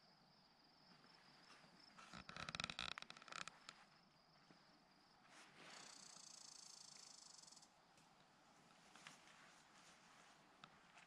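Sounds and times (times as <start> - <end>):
insects trilling: 0.0 - 4.3, 5.6 - 7.8.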